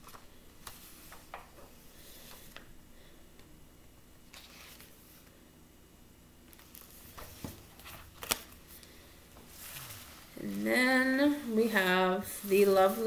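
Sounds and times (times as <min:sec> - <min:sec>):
book pages turning: 0:00.0 - 0:02.7, 0:04.3 - 0:05.3, 0:06.5 - 0:10.7.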